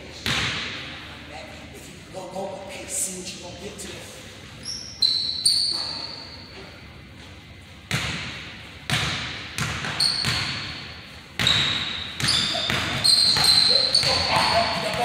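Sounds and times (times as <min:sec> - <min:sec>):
sneakers squeaking: 0:04.4 - 0:15.0.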